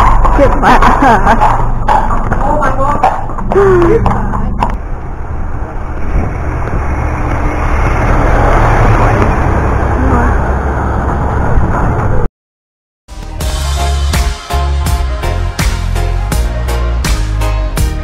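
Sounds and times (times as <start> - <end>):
lorry engine and tyre noise: 0.0 - 12.3.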